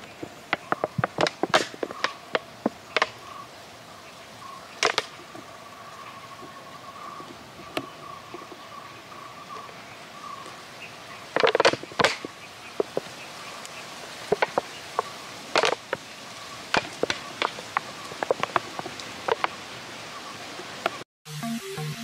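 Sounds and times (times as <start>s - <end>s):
plastic bottle crinkling and popping: 0.2s - 3.2s, 11.4s - 13.1s, 14.3s - 16.0s, 16.8s - 19.6s.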